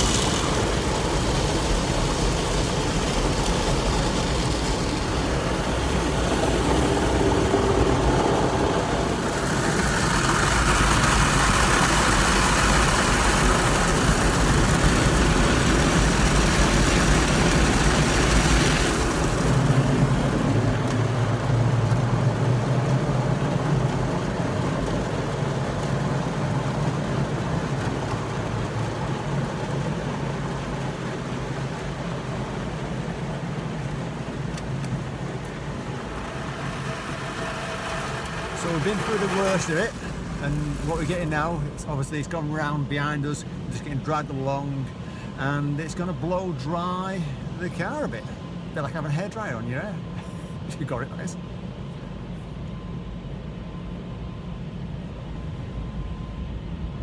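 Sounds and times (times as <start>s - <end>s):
loud hissing spray: 0.0s - 6.6s, 36.1s - 41.5s
car wash brushes and water: 0.0s - 48.7s
low machine hum: 0.0s - 57.0s.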